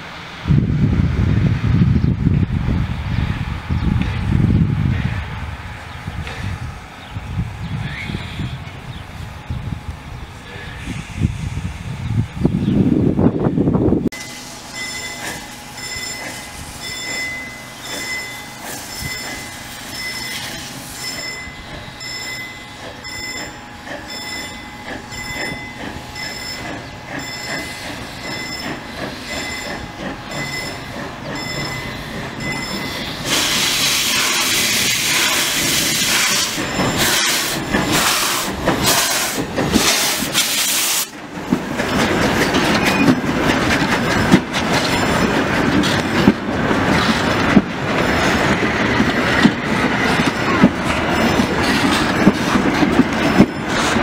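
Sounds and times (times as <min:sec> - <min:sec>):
steam locomotive chuffs: 0:00.0 - 0:54.0
steam hiss: 0:10.5 - 0:12.0, 0:14.2 - 0:21.4, 0:27.5 - 0:29.8, 0:31.8 - 0:41.2
clatter of train wheels: 0:14.1 - 0:54.0.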